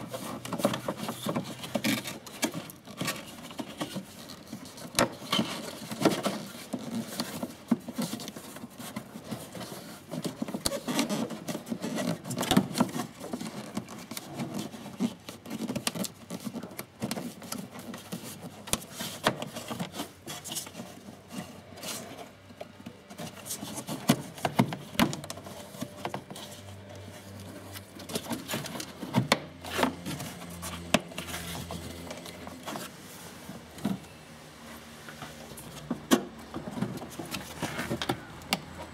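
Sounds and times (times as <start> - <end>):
plastic rubbing and scraping: 0.0 - 38.9.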